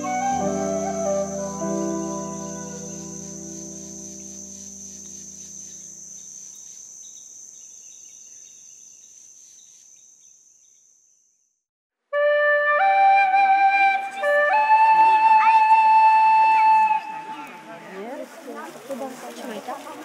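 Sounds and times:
flute melody: 0:00.0 - 0:04.0, 0:12.1 - 0:17.7
low held music chord: 0:00.0 - 0:04.9
crickets chirping: 0:00.0 - 0:11.6.

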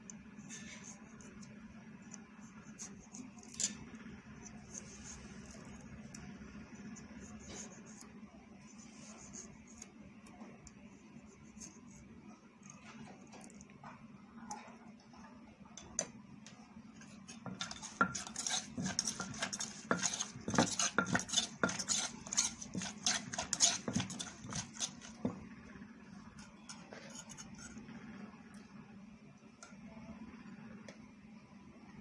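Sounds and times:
pestle pounding in mortar: 0:17.4 - 0:25.5.

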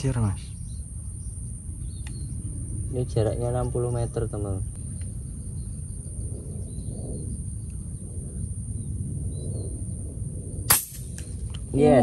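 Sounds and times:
faint bird chirps: 0:00.0 - 0:03.3, 0:03.9 - 0:09.9
low background rumble: 0:00.0 - 0:12.0.

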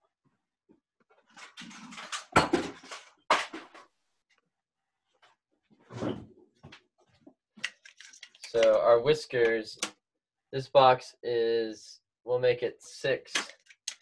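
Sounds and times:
rummaging and handling objects: 0:01.2 - 0:03.9, 0:05.2 - 0:08.8.

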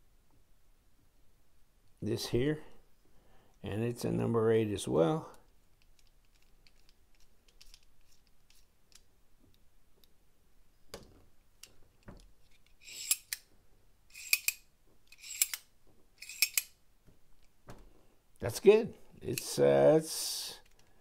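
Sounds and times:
screwdriver turning small screw: 0:05.8 - 0:09.1, 0:12.4 - 0:13.5, 0:14.1 - 0:16.8
sharp metal clicks: 0:12.6 - 0:13.5, 0:14.1 - 0:16.8
soft knocks: 0:17.0 - 0:18.0.

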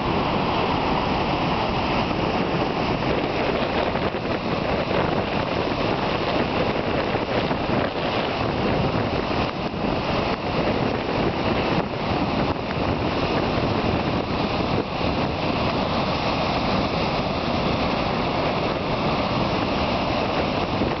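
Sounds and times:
waterfall rushing: 0:00.0 - 0:21.0.

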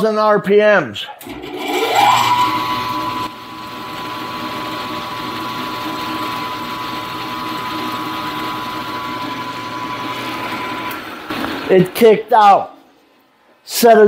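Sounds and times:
mill spindle motor whining: 0:01.2 - 0:11.7.

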